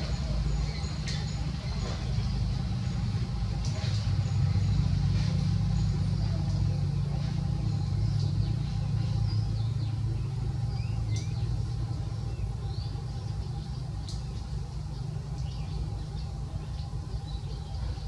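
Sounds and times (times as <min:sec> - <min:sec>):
vehicle engine running: 0:00.0 - 0:18.0
bird chirps: 0:04.2 - 0:18.0.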